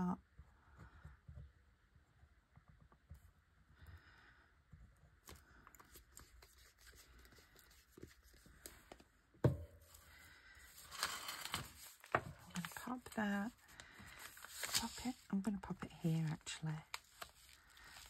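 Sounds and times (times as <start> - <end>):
clicks and scrapes of handling: 10.7 - 15.3.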